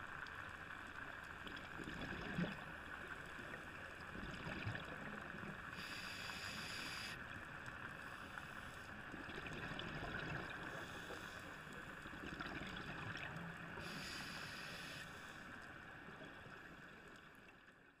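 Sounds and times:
exhaled regulator bubbles: 0:01.4 - 0:06.7, 0:09.0 - 0:14.4
diver breathing hiss: 0:05.7 - 0:07.2, 0:10.7 - 0:11.9, 0:13.8 - 0:15.6.

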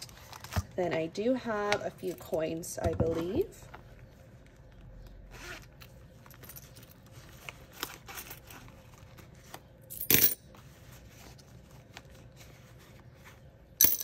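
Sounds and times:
coins rustling and clicking: 0:06.1 - 0:08.7, 0:09.8 - 0:10.5, 0:13.8 - 0:14.0
coins clattering into a cup: 0:09.9 - 0:10.4, 0:13.8 - 0:14.0.

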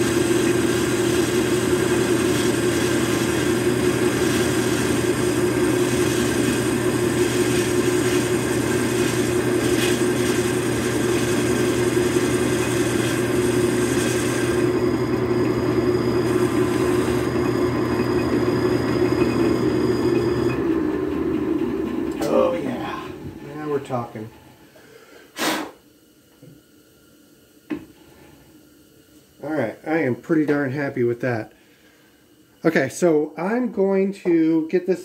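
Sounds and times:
lathe tool scratchy cutting: 0:00.0 - 0:22.0
lathe motor humming: 0:00.0 - 0:24.6.

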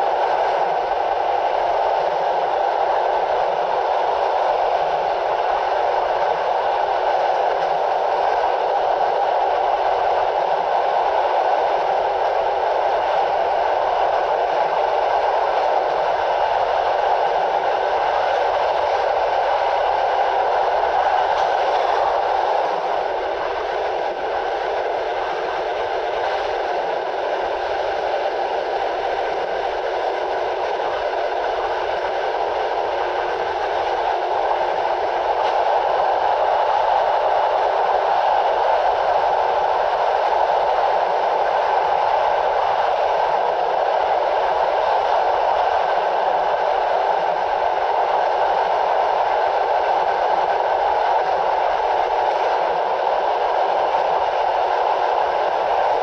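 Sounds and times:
train wheels on rails: 0:00.0 - 0:56.0.

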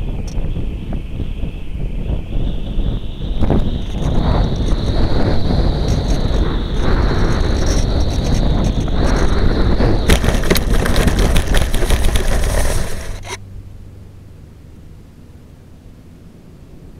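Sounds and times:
steady high whine: 0:00.0 - 0:16.9
air rushing over camera: 0:03.3 - 0:13.4
scraping through dry grass: 0:03.9 - 0:13.4.

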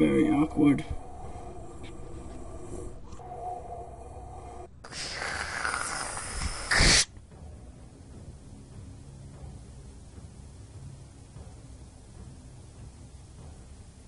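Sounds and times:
quiet drone: 0:00.0 - 0:14.0
tv static hiss: 0:04.9 - 0:07.1.

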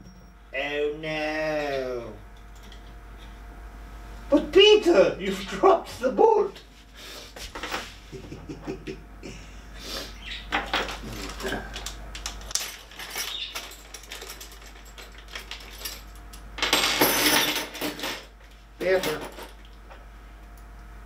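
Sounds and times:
small metal parts clinking: 0:10.5 - 0:19.7.

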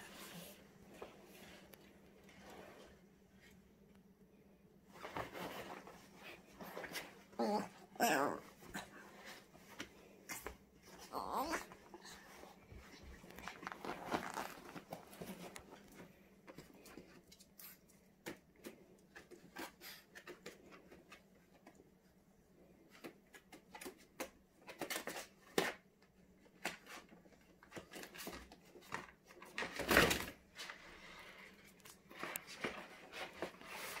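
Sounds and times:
rustling scuffle: 0:04.9 - 0:16.2.

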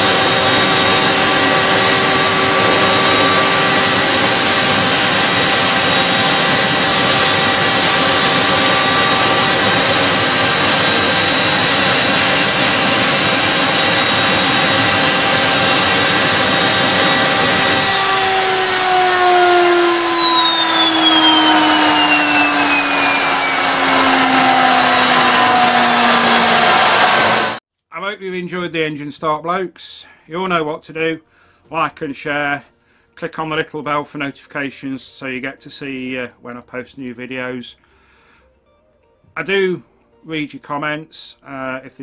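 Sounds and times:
jet engine whine: 0:00.0 - 0:27.6
rushing noise: 0:00.0 - 0:27.6.

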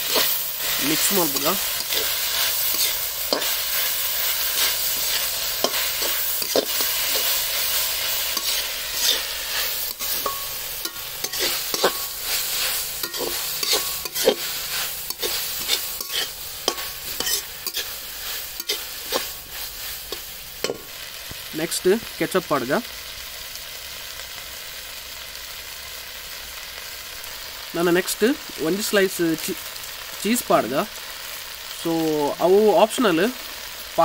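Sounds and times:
metal spatula scraping pan: 0:00.0 - 0:20.9
vegetables sizzling: 0:00.0 - 0:34.0.

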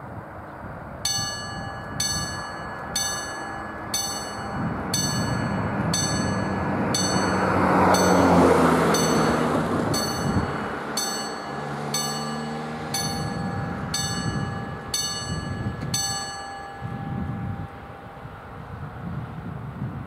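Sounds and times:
level crossing warning bell: 0:01.0 - 0:19.6
car driving past: 0:04.8 - 0:15.0.

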